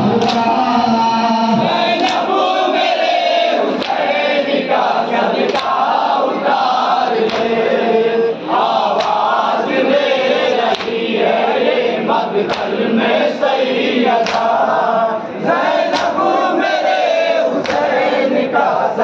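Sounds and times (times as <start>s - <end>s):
men chanting in unison: 0.0s - 19.0s
chest-beating slaps: 0.1s - 0.6s, 2.0s - 2.3s, 7.2s - 7.6s, 9.0s - 9.3s, 10.7s - 11.0s, 12.5s - 12.8s, 14.2s - 14.6s, 15.9s - 16.2s.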